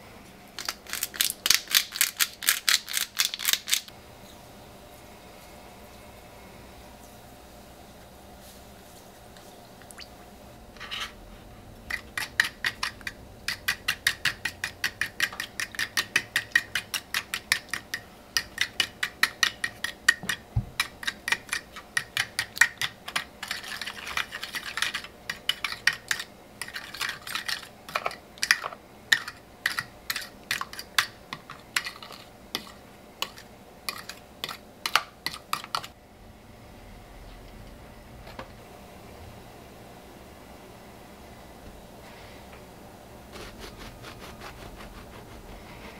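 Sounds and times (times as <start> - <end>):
fork whisking in a bowl: 11.9 - 35.9.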